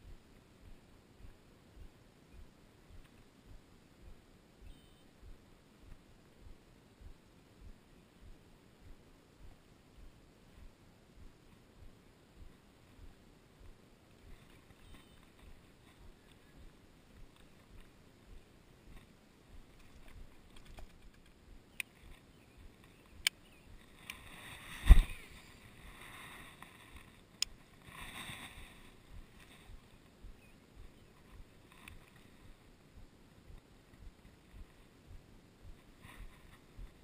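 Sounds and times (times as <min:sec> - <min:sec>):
rustling: 0:23.7 - 0:32.7.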